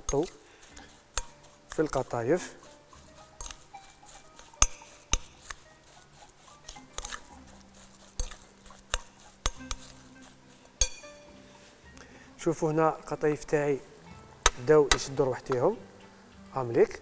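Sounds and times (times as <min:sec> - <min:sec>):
hands mixing moist filling: 0:00.0 - 0:17.0
clinks against glass bowl: 0:04.6 - 0:05.3, 0:10.8 - 0:11.3.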